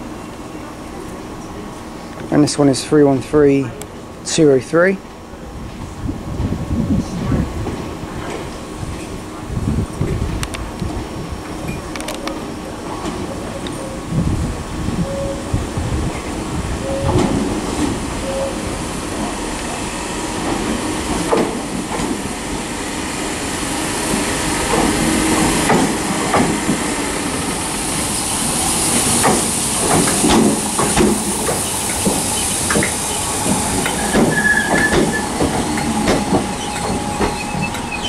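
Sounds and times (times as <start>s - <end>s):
train air hiss: 12.5s - 38.0s.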